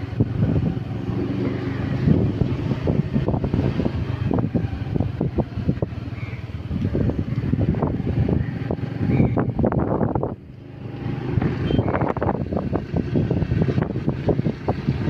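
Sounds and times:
vehicle running noise: 0.0s - 15.0s
wind buffeting microphone: 0.0s - 15.0s.

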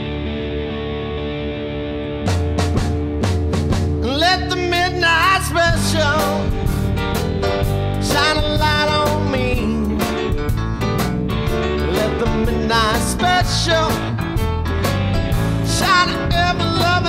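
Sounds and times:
bass: 0.0s - 17.0s
electric guitar lead bending notes: 0.0s - 17.0s
drums: 2.0s - 17.0s
person singing: 4.0s - 6.6s, 8.0s - 10.4s, 11.7s - 14.2s, 15.5s - 17.0s.

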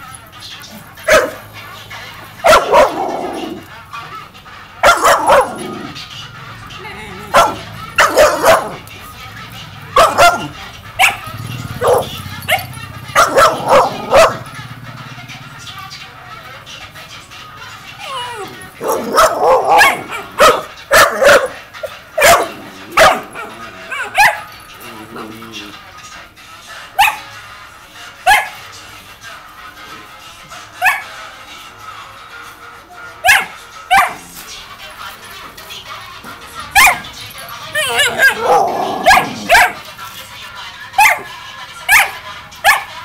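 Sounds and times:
dog barking and yelping: 0.6s - 14.6s, 17.6s - 25.8s, 27.0s - 27.3s, 28.2s - 28.6s, 30.8s - 31.1s, 33.2s - 34.4s, 36.5s - 39.9s, 41.0s - 43.0s
puppy yapping: 1.0s - 1.5s, 2.4s - 4.1s, 4.8s - 6.0s, 6.8s - 8.9s, 10.0s - 14.5s, 18.0s - 25.6s, 27.0s - 27.3s, 28.3s - 28.6s, 30.8s - 31.1s, 33.2s - 34.4s, 36.7s - 39.9s, 41.0s - 41.3s, 41.9s - 42.9s
dog whining: 6.6s - 8.9s, 10.0s - 14.5s, 17.9s - 25.7s, 37.7s - 39.8s.

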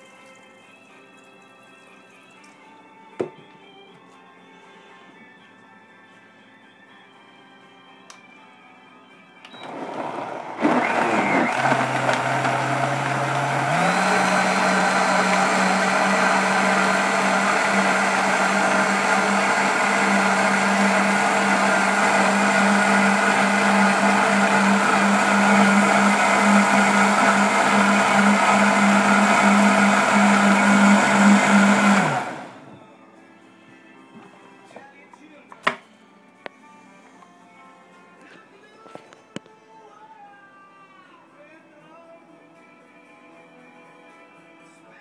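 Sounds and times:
blender motor running: 9.6s - 32.7s.

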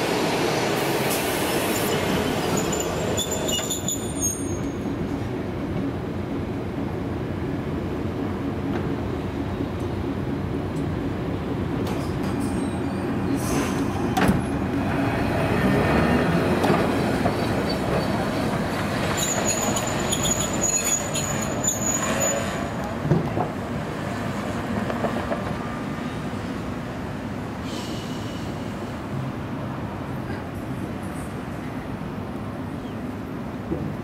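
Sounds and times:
tram rumbling on track: 0.0s - 34.0s
wheel squeal: 1.8s - 4.8s, 19.2s - 22.7s
tram clanks: 8.6s - 26.6s, 30.1s - 31.5s, 33.6s - 34.0s.

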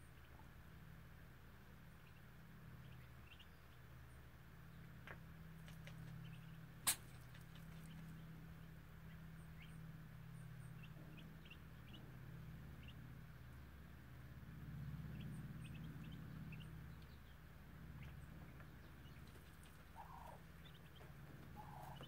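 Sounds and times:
ducklings peeping: 0.0s - 22.0s
steady low hum: 0.0s - 22.0s.

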